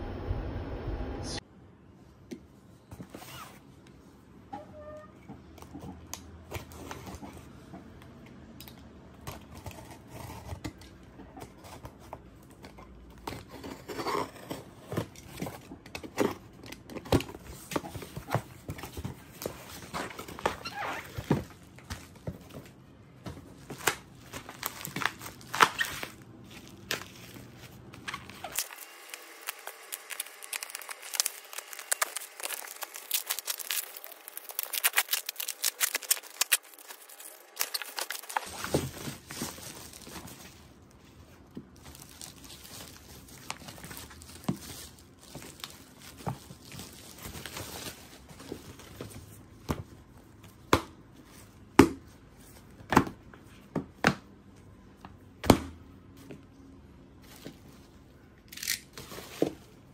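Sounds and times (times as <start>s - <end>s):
bubble wrap crinkling: 23.5s - 49.3s.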